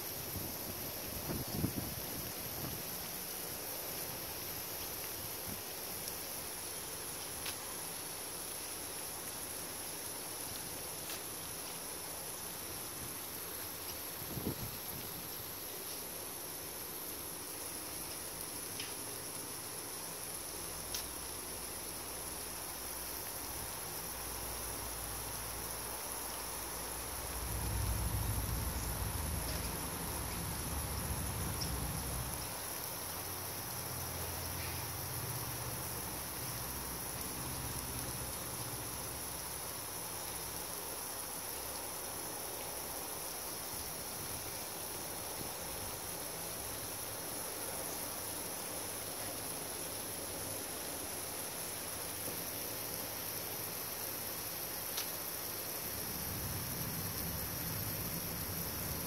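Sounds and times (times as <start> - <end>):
high insect drone: 0.0 - 59.0
hiss of falling water spray: 0.0 - 59.0
faint ticks: 18.0 - 19.1, 20.8 - 21.2, 54.9 - 55.2.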